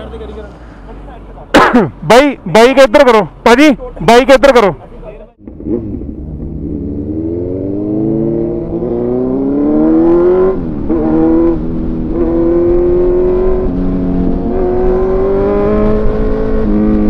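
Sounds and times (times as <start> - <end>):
motorcycle engine accelerating: 5.4 - 17.0.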